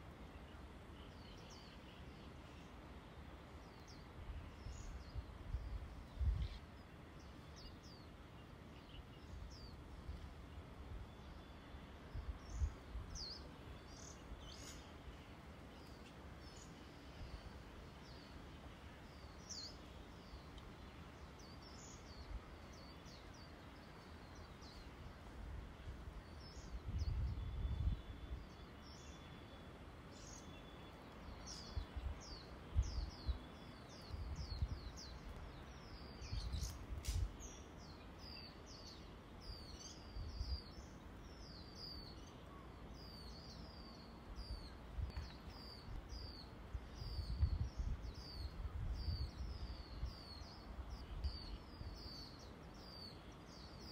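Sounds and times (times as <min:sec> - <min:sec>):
small birds chirping: 0:00.0 - 0:53.9
wind rumbling on microphone: 0:03.9 - 0:06.9, 0:12.0 - 0:15.0, 0:24.6 - 0:28.7, 0:31.3 - 0:40.8, 0:44.3 - 0:53.0
sharp click: 0:37.0 - 0:37.3.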